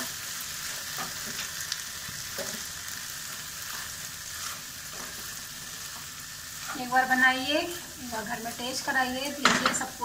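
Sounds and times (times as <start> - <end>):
vegetables sizzling in a pan: 0.0 - 10.0
spatula scraping a pan: 3.6 - 7.2.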